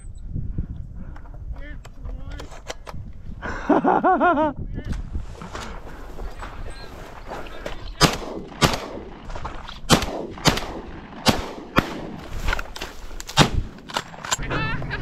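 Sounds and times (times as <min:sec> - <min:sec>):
shotguns firing: 0:07.9 - 0:14.4.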